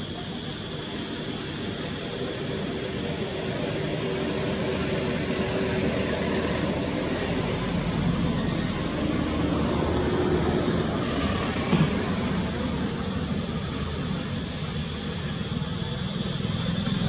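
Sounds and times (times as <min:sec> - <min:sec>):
steady rushing noise: 0:00.0 - 0:17.0.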